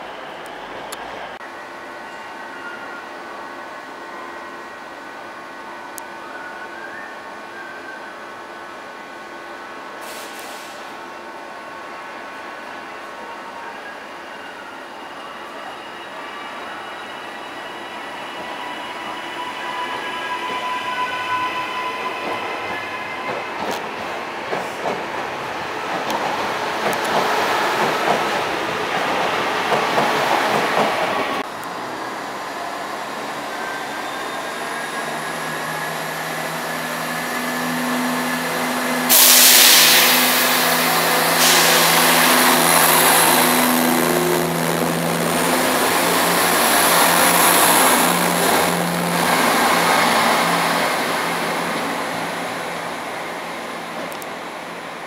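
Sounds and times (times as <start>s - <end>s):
train hum with rising whine: 0.0s - 10.1s, 10.8s - 55.0s
loud hiss: 10.0s - 10.9s, 38.8s - 45.2s
train passing at speed: 15.6s - 55.0s.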